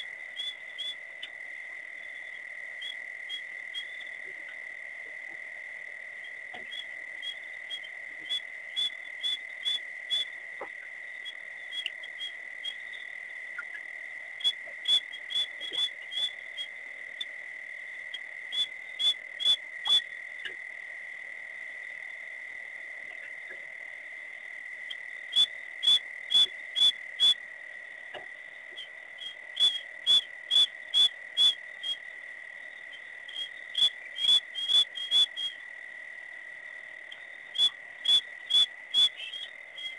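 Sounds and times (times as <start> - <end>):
frogs short clicking calls: 0.0 - 20.8, 24.4 - 39.9
frogs high-pitched ringing trill: 0.0 - 39.9.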